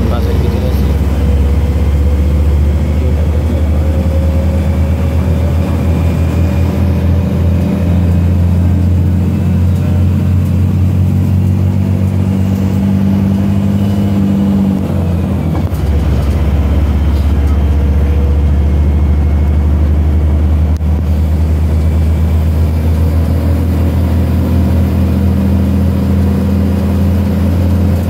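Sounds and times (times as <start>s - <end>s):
bus engine and road noise: 0.0s - 28.0s.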